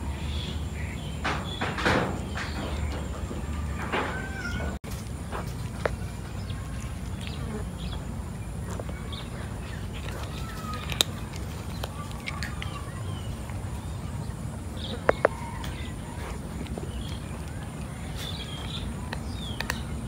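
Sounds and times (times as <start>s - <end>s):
cat crunching dry kibble: 4.8s - 14.2s.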